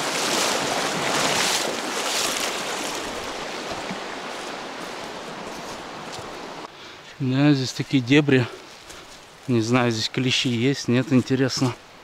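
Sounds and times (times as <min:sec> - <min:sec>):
fast river rushing water: 0:00.0 - 0:06.7.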